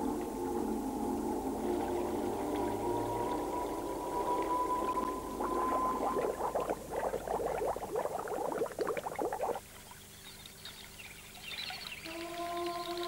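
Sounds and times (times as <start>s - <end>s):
held musical note: 0.0s - 7.0s
water bubbling and gurgling: 0.0s - 13.0s.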